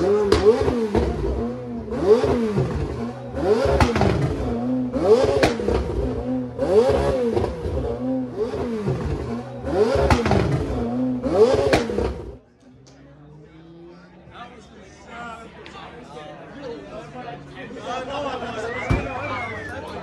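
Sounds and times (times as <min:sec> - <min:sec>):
engine revving in short blips: 0:00.0 - 0:12.4.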